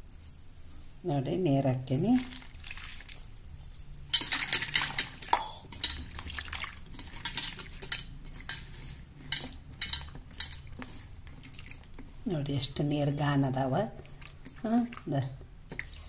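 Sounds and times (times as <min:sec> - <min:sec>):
water splashing in a bowl: 0:02.0 - 0:03.4, 0:04.2 - 0:08.0, 0:10.7 - 0:11.9, 0:14.0 - 0:16.0.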